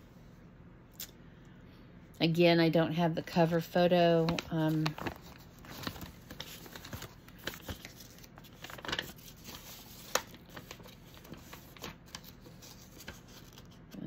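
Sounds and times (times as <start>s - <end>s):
packaging rustling: 4.2s - 14.0s.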